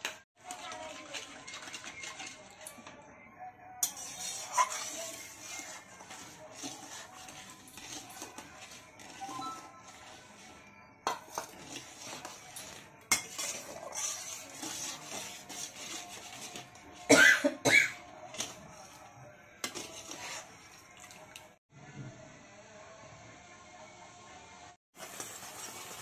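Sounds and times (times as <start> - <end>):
metal spatula scraping a pan: 0.0 - 2.9, 3.8 - 21.0.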